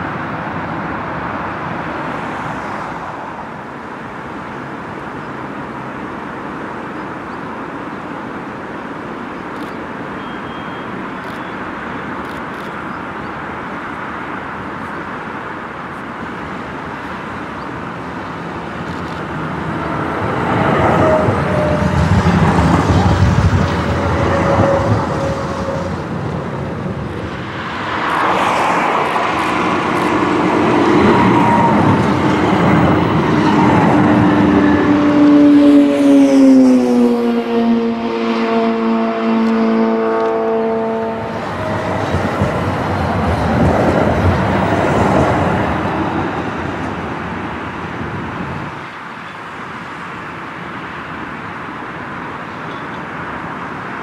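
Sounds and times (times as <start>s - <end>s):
road traffic passing: 0.0s - 54.0s
vehicle passing with falling whine: 18.5s - 46.6s.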